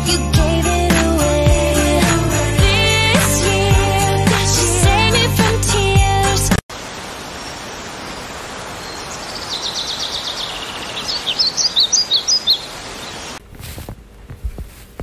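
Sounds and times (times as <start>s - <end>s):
cockatoo chirping: 9.4s - 13.4s.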